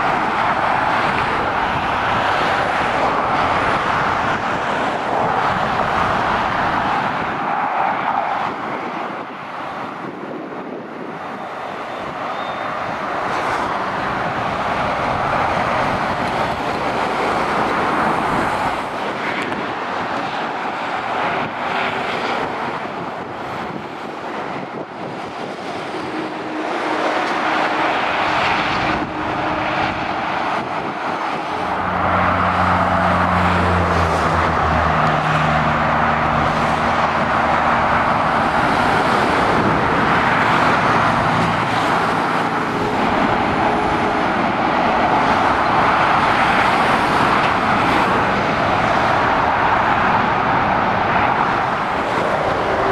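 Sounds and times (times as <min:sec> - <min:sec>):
traffic tyre noise: 0:00.0 - 0:52.9
lorry diesel engine drone: 0:09.6 - 0:52.9.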